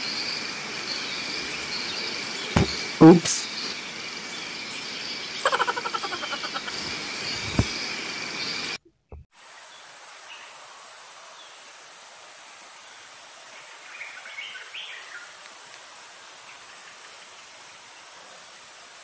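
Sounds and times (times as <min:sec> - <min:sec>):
insect drone: 0:00.0 - 0:08.8
chattering calls: 0:05.2 - 0:08.7.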